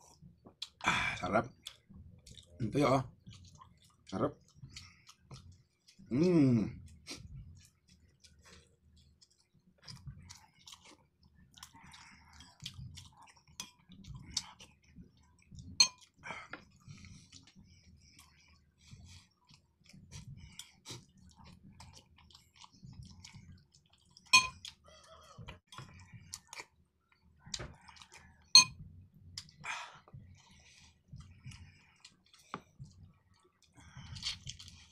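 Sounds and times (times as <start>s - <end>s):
man chewing and lip-smacking: 0.0s - 34.9s.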